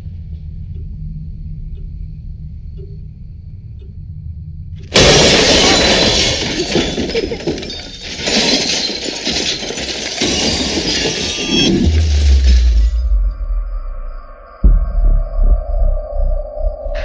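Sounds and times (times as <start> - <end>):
low rumble: 0.0 - 4.9, 11.7 - 17.0
glass crashing and shattering: 4.9 - 13.0.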